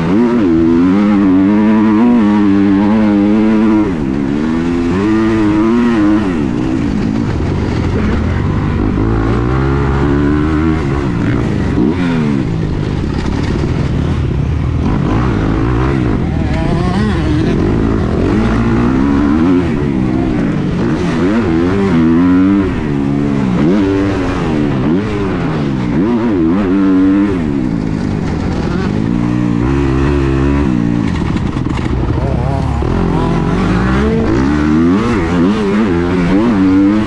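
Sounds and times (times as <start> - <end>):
motocross bike engine revving: 0.0 - 37.0.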